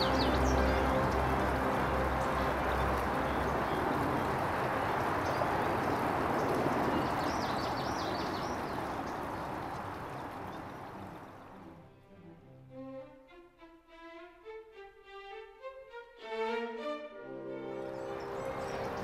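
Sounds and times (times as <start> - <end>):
outdoor background noise: 0.0 - 12.5, 17.6 - 19.0.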